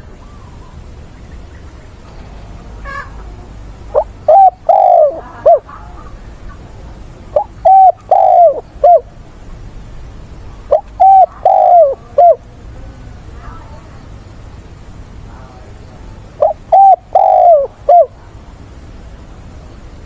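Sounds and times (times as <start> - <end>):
dove cooing: 2.8 - 6.7, 7.3 - 9.1, 10.6 - 12.5, 16.3 - 18.2.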